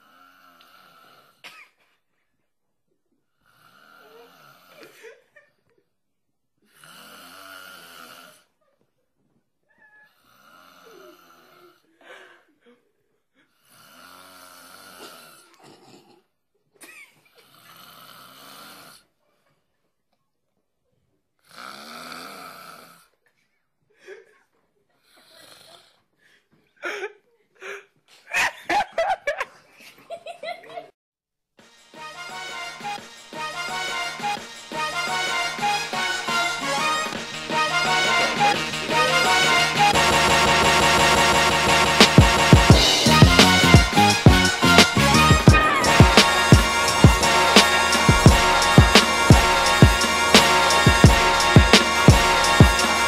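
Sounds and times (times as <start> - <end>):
man snoring: 3.4 - 4.7, 6.7 - 8.4, 13.7 - 15.4, 17.4 - 19.0, 21.4 - 23.1
short sharp sounds: 36.1 - 53.0.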